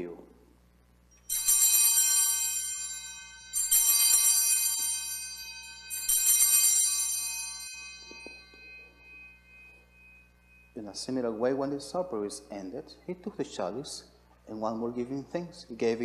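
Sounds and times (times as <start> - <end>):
altar bells ringing: 1.1 - 12.5.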